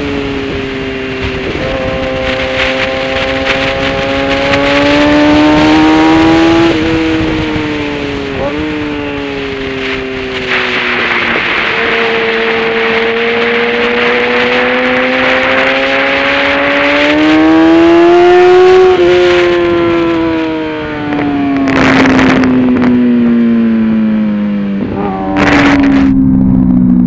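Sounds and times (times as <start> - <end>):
motorcycle engine revving: 0.0 - 27.0
wind rushing: 0.2 - 16.5, 24.8 - 27.0.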